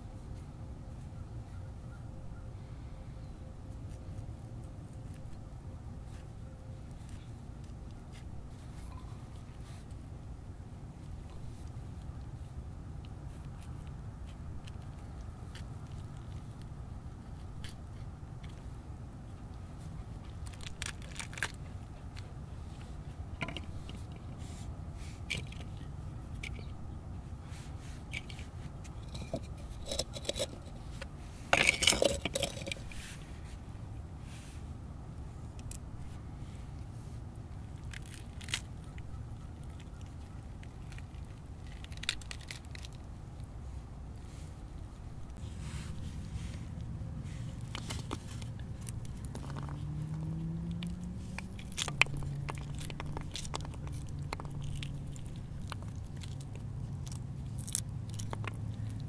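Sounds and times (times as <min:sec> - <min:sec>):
fruit rind tearing and crackling: 0:13.0 - 0:18.6, 0:19.4 - 0:27.0, 0:37.5 - 0:43.6, 0:45.2 - 0:59.0.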